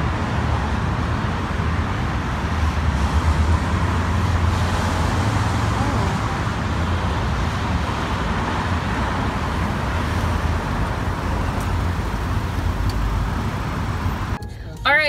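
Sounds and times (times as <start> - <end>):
road traffic rumble: 0.0 - 15.0
car pulling up: 9.2 - 15.0.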